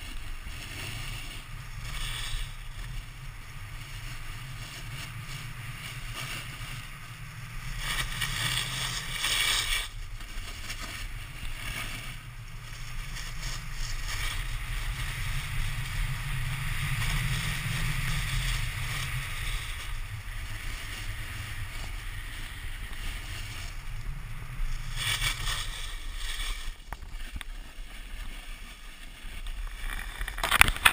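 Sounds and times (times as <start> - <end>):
snowboard scraping on snow: 0.0 - 30.9
wind buffeting microphone: 0.0 - 30.9.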